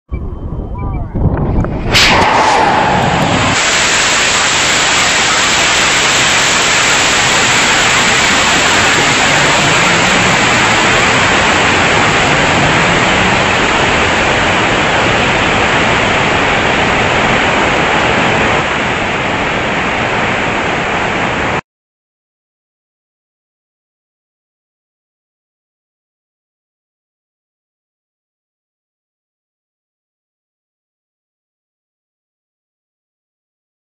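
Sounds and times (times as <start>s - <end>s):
air rushing past rocket camera: 1.1s - 20.7s.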